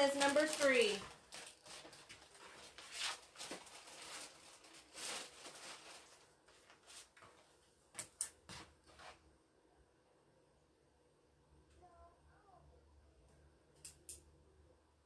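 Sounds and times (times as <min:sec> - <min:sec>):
cellophane rustling: 0:00.0 - 0:07.6.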